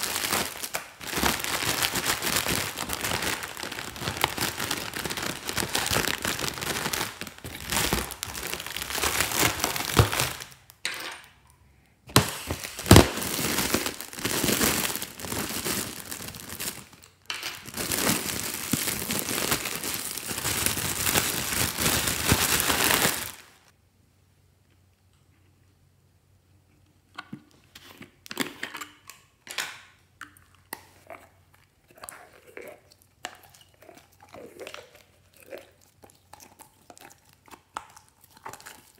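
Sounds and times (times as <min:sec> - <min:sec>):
plastic packet crinkling: 0:00.0 - 0:10.8, 0:12.1 - 0:23.7.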